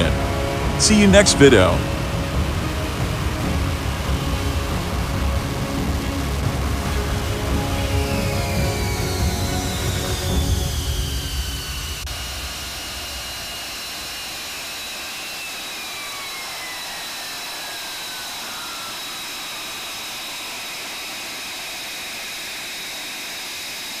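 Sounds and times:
jet engine running: 0.0s - 24.0s.

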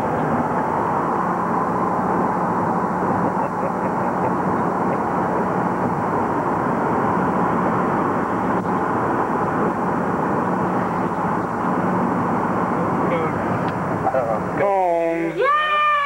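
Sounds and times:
constant low hum: 0.0s - 16.0s
road and wind noise inside vehicle: 0.0s - 16.0s.

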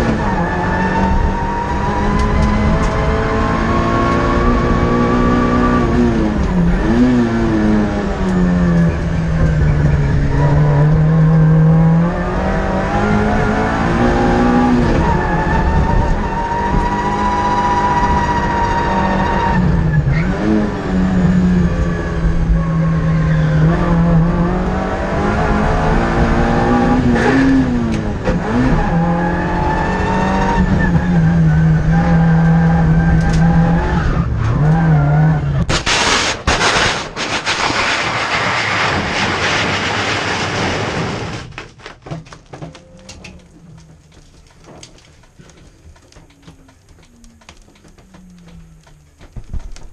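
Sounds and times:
rally car engine racing: 0.0s - 35.7s
car crash impacts and scraping: 35.6s - 42.7s
windscreen shattering: 35.7s - 42.3s.

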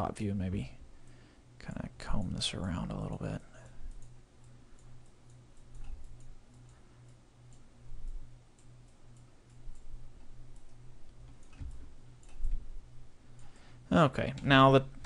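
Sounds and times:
low pulsing hum: 0.6s - 15.0s
computer mouse clicks: 3.9s - 9.9s, 10.5s - 12.6s.

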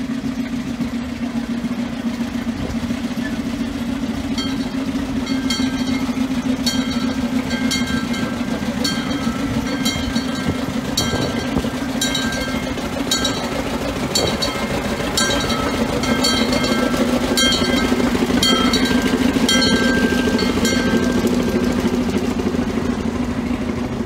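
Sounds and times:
locomotive engine running: 0.0s - 24.0s
wheel clicks on rails: 4.3s - 22.4s.

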